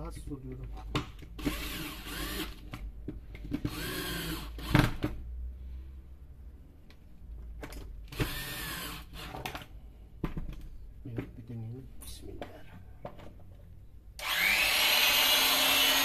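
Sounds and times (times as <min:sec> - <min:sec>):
cordless drill motor whine: 0:01.4 - 0:02.6, 0:03.7 - 0:04.8, 0:08.1 - 0:09.2, 0:14.2 - 0:16.0.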